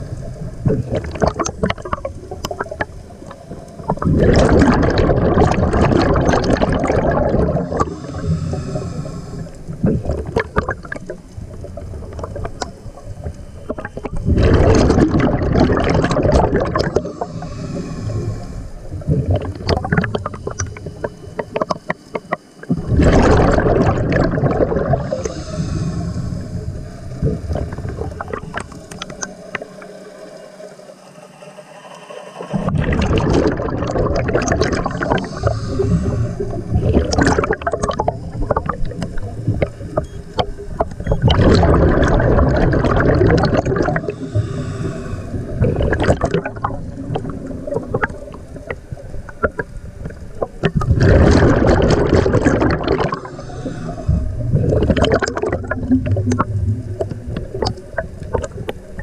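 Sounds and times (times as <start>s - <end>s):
underwater bubbles rushing: 0.0s - 31.0s, 31.8s - 59.0s
diver breathing: 7.4s - 10.2s, 16.8s - 19.1s, 24.7s - 33.8s, 34.8s - 40.8s, 43.8s - 48.6s, 52.6s - 55.0s.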